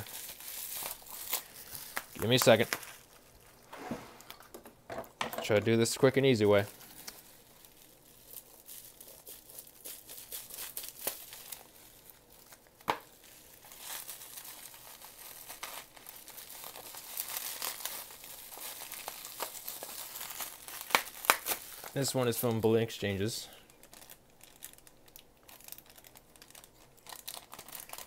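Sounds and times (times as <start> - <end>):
bubble wrap clicks: 0.0 - 3.3, 7.0 - 11.6, 12.4 - 22.0
bubble wrap crinkling: 0.0 - 4.6, 6.0 - 28.0.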